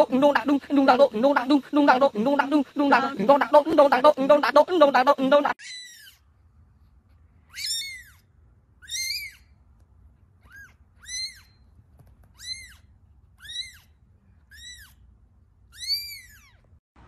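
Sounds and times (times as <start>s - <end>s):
kitten mewing: 7.5s - 8.2s, 8.8s - 9.5s, 10.4s - 11.5s, 12.2s - 15.0s.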